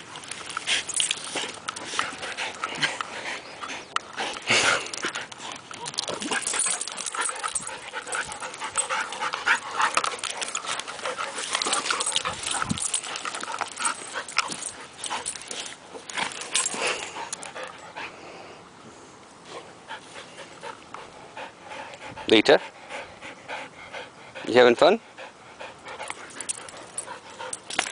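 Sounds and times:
dogs scuffling: 0.0 - 17.5.

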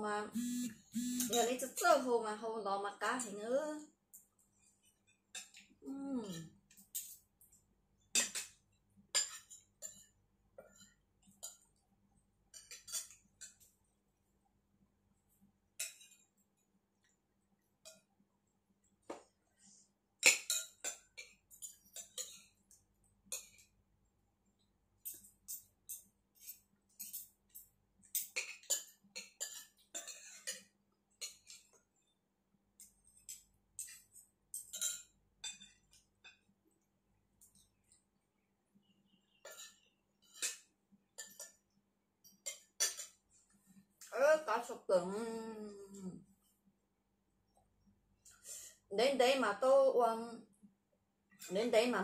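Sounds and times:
spoons clinking on ceramic plates: 8.1 - 11.8, 12.5 - 13.7, 15.8 - 16.4, 20.2 - 23.8, 25.0 - 31.8, 33.2 - 36.5, 39.4 - 43.2.

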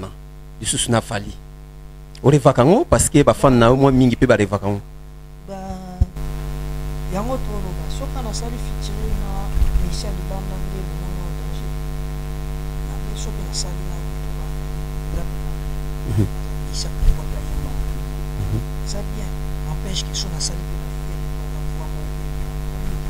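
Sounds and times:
loud electrical mains hum: 0.0 - 23.0
faint man's speech: 16.0 - 17.7, 18.4 - 20.6.

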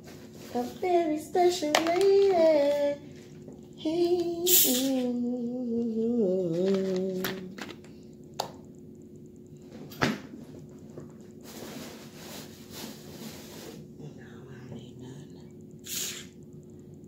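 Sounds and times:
woman humming: 3.8 - 7.6
bottle opening hiss: 4.5 - 5.0, 15.9 - 16.3.

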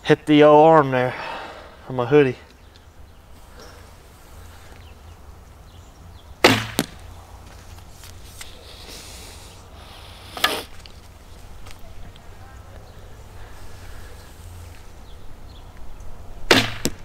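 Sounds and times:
arrow striking bag target: 6.4 - 7.0, 16.5 - 17.0.

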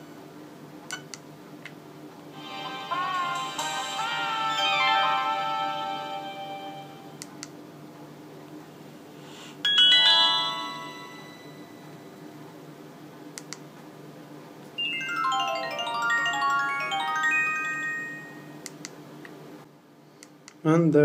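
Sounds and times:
phone message alert tones: 14.8 - 18.6.

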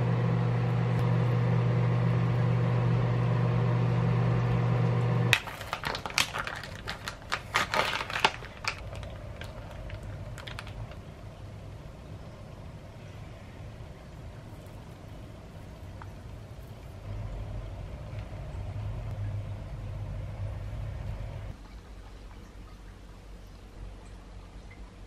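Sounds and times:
steady low hum: 0.0 - 5.7, 8.0 - 25.0
plastic pouch crinkling: 5.3 - 11.1.

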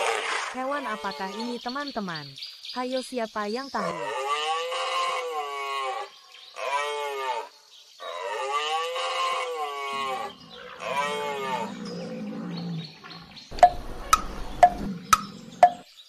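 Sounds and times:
rhinoceros bellowing calls: 3.8 - 15.8.

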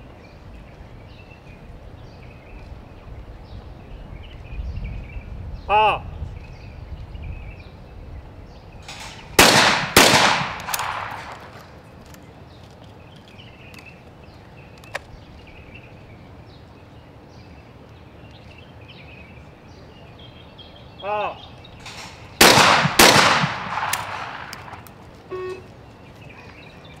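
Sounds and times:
shotgun shots echoing: 8.8 - 11.7, 21.8 - 24.9.

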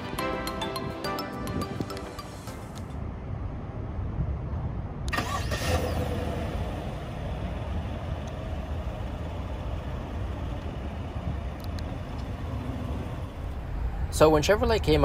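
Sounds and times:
truck engine idling: 5.1 - 15.0.

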